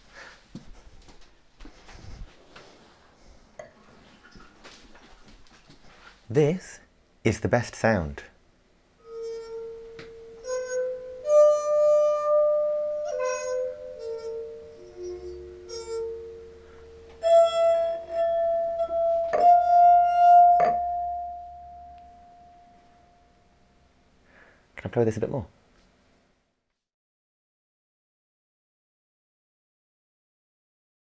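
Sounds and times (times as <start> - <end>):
water-filled wine glasses ringing: 9.1 - 22.8.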